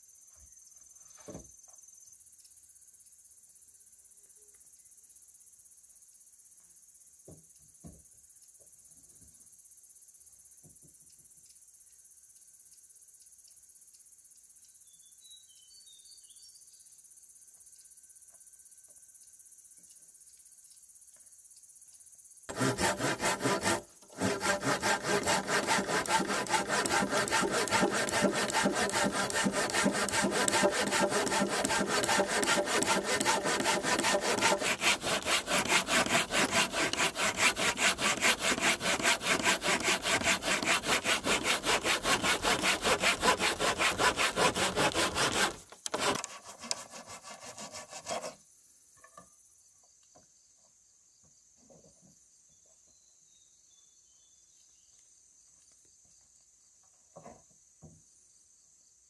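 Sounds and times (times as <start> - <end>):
faint insect chirring: 0.0 - 22.5, 48.3 - 59.0
hand saw cutting wood: 22.5 - 48.4.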